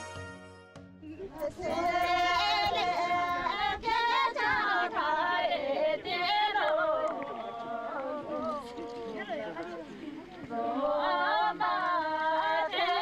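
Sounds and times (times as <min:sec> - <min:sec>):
women singing without instruments: 0:01.3 - 0:09.1, 0:10.4 - 0:13.0.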